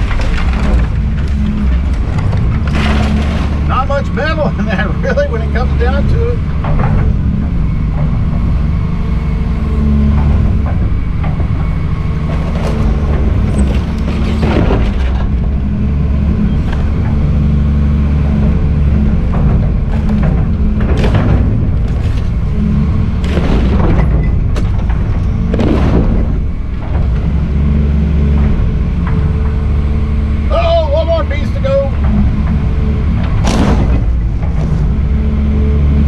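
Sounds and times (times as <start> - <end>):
bucket crunching sheet metal: 0.0 - 5.8
excavator diesel engine running: 0.0 - 36.0.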